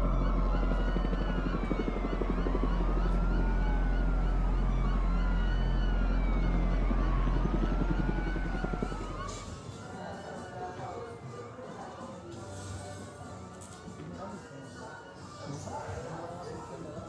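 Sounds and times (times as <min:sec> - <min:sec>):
low fluttering rumble: 0:00.0 - 0:09.6
emergency sirens wailing: 0:00.0 - 0:17.0.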